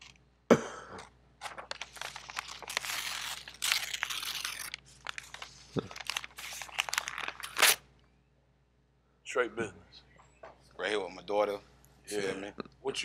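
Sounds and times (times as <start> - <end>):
crinkling crunching noise: 1.0 - 7.8.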